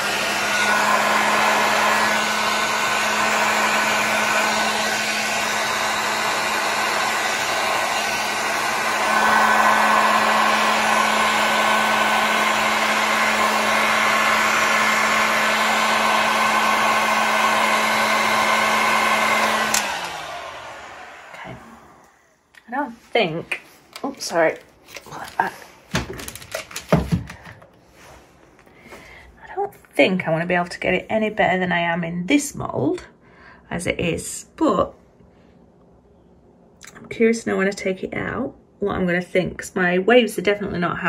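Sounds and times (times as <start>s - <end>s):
heat gun blowing air: 0.0s - 22.4s
heat gun motor winding down: 9.1s - 22.2s.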